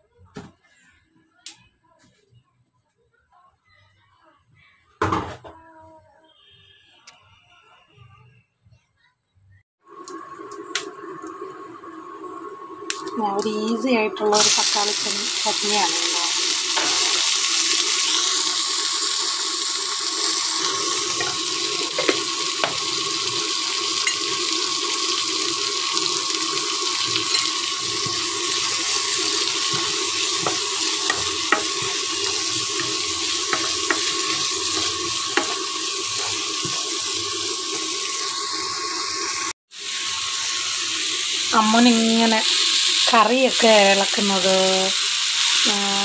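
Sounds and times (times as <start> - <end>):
vegetables sizzling in oil: 9.8 - 46.0.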